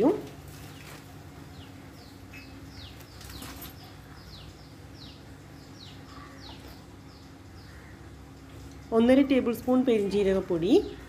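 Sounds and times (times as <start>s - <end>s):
small bird chirping: 1.5s - 8.0s.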